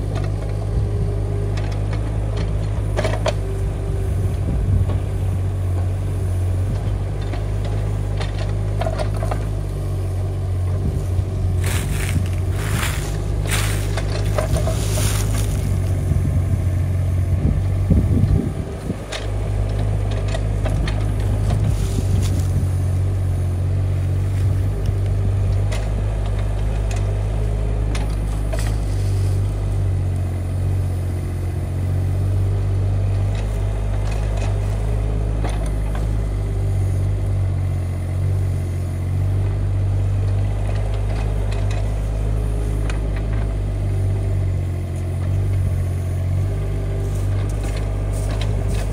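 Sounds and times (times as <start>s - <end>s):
diesel excavator engine running: 0.0s - 48.9s
bucket scraping soil: 10.9s - 16.0s, 21.5s - 22.6s, 28.7s - 29.4s.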